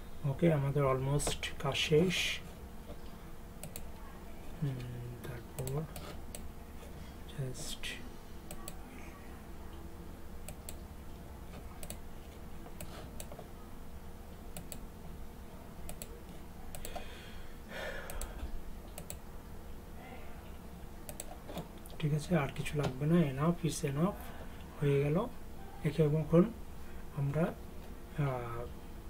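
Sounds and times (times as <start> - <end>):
faint low hum: 0.0 - 29.0
computer mouse clicks: 3.6 - 3.9, 5.6 - 6.5, 10.4 - 10.8, 11.5 - 12.0, 12.8 - 13.4, 14.5 - 14.8, 15.8 - 16.1, 18.1 - 18.3, 18.9 - 19.2, 21.1 - 21.7.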